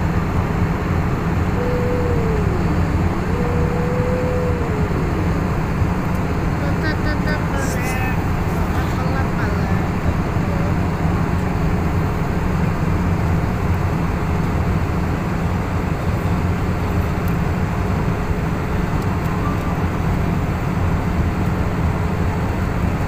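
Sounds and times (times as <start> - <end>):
airplane cabin engine rumble: 0.0 - 23.0.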